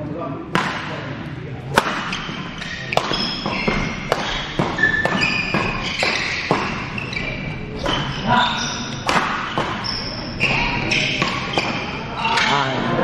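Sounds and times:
rackets hitting shuttlecock: 0.5s - 12.6s
shoes squeaking on court floor: 1.6s - 13.0s.

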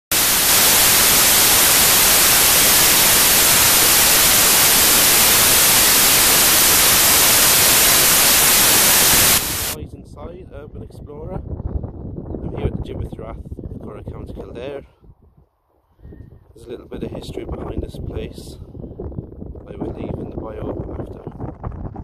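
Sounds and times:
static hiss: 0.0s - 9.8s.

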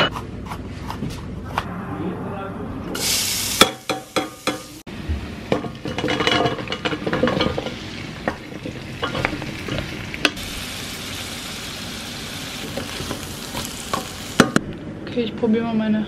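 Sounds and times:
onion sizzling in hot oil: 3.0s - 14.6s.

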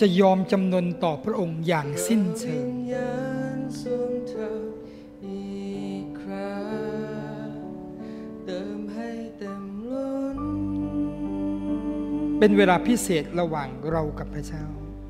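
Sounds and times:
person singing long notes: 1.7s - 13.4s
keyboard and guitar chords: 6.2s - 15.0s.

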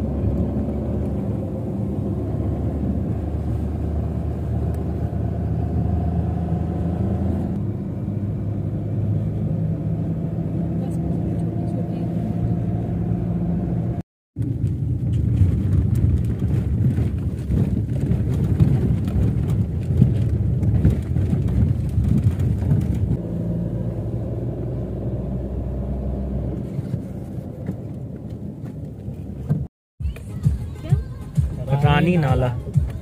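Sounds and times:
car engine hum: 0.0s - 33.0s
tyres rumbling on gravel: 14.4s - 23.2s.

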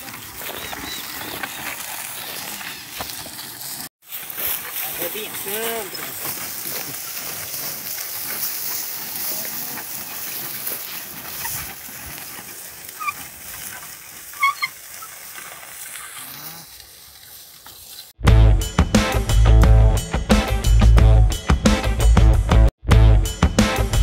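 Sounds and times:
rustling field noise: 0.0s - 18.2s.

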